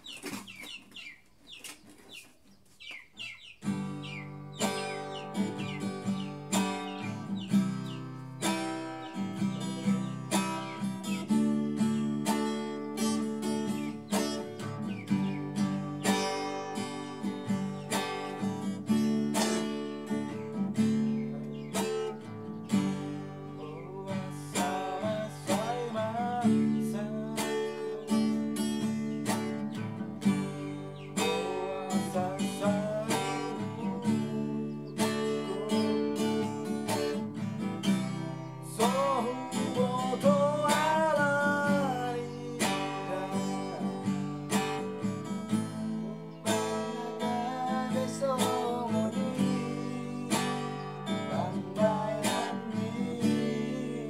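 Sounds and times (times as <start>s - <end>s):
classical guitar playing: 3.6s - 54.0s.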